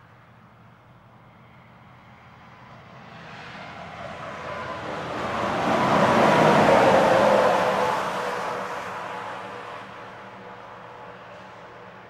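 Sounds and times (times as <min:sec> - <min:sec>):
truck engine and tyre noise: 0:00.0 - 0:12.0.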